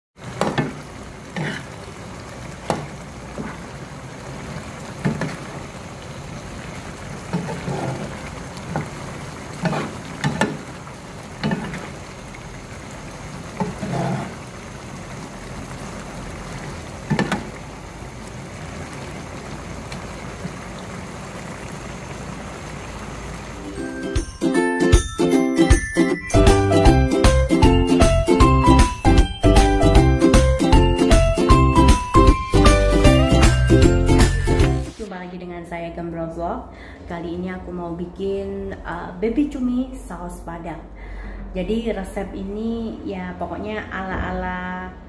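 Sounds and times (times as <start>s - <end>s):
sauce simmering and sizzling: 0.2s - 25.0s, 26.3s - 35.0s.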